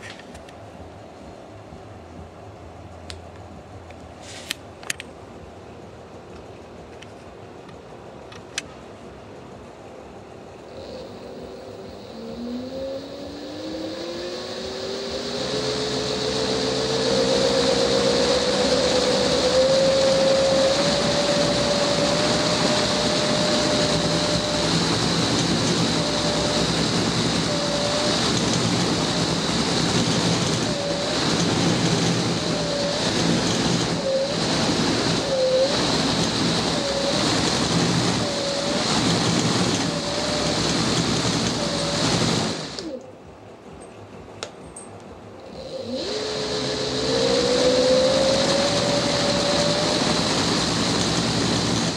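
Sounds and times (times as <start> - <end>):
click: 6.4 - 8.7
electric motor whine: 10.7 - 43.0, 45.4 - 51.9
rush of air from blades: 10.7 - 43.0, 45.5 - 51.9.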